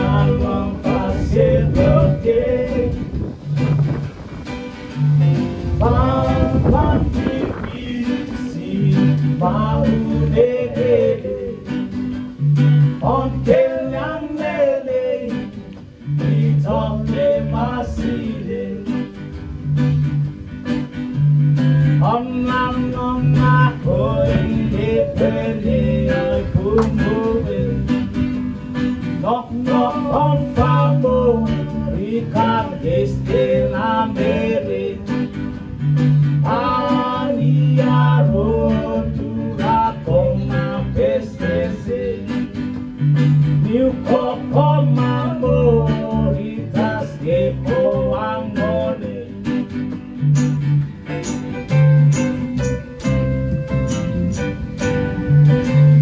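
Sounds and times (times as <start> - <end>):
person singing: 0.0 - 3.2, 5.7 - 11.8, 12.9 - 19.2, 22.0 - 28.2, 29.2 - 35.4, 36.4 - 42.6, 43.6 - 49.5
electric guitar: 0.0 - 56.0
keyboard: 0.0 - 56.0
strummed acoustic guitar: 0.0 - 56.0.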